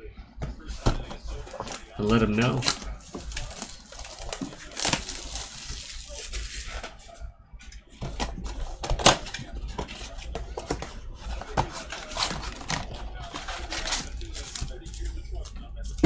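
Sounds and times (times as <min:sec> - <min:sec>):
plastic wrap crackling: 0:01.4 - 0:07.2.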